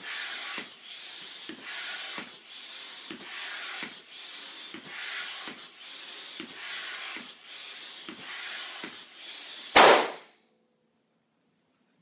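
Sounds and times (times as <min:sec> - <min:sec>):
hand pump air rush: 0:00.0 - 0:10.1
balloon bursting: 0:09.6 - 0:10.3.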